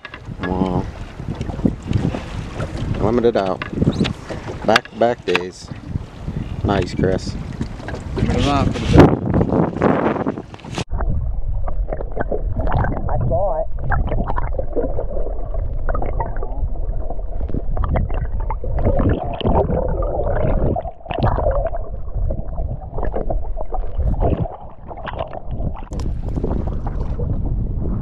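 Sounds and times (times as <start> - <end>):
underwater water gurgling and rushing: 0.0 - 28.0
knocks and clicks: 2.8 - 5.6.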